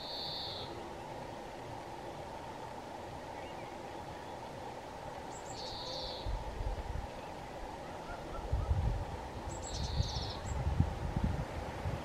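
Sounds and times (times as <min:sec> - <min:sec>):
songbird singing with trill: 0:00.0 - 0:01.5, 0:03.3 - 0:04.5, 0:05.3 - 0:06.4, 0:07.0 - 0:10.7
steady low background noise: 0:00.0 - 0:12.0
wind gusts on microphone: 0:06.2 - 0:12.0.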